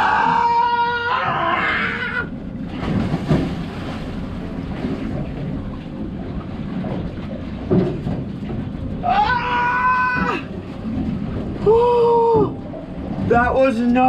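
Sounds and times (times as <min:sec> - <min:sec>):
wailing cry: 0:00.0 - 0:02.3, 0:09.0 - 0:10.5
water noise: 0:00.0 - 0:14.0
wind: 0:00.0 - 0:14.0.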